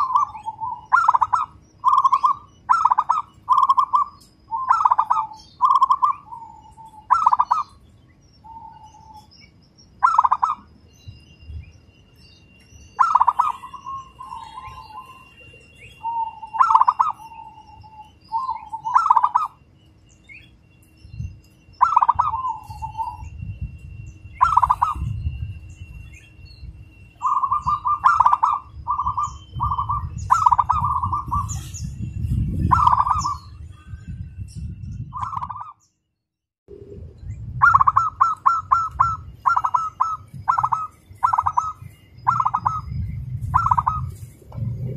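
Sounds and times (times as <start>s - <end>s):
dove cooing: 0.0s - 7.8s, 10.0s - 10.7s, 13.0s - 19.6s, 21.8s - 23.2s, 24.4s - 25.2s, 27.2s - 31.8s, 32.6s - 33.5s, 37.6s - 44.9s.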